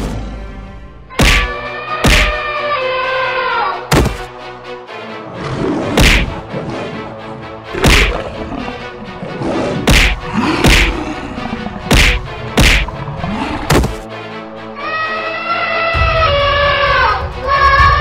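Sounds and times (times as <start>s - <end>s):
background music: 0.0s - 18.0s
cartoon whacking hits: 1.2s - 2.4s, 3.9s - 4.3s, 6.0s - 6.3s, 7.8s - 8.1s, 9.9s - 10.9s, 11.9s - 12.9s, 13.7s - 14.0s.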